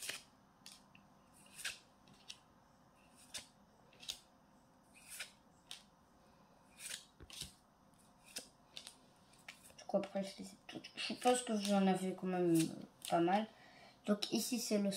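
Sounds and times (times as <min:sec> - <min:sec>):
cards sliding with soft swish: 0:00.0 - 0:02.4, 0:03.0 - 0:04.3, 0:04.9 - 0:05.9, 0:06.5 - 0:10.3, 0:11.1 - 0:13.2.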